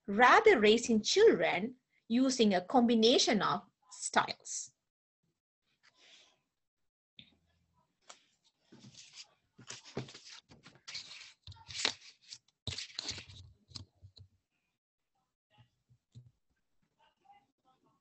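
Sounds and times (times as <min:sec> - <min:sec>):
rustling and scraping handling noise: 0:08.0 - 0:14.2.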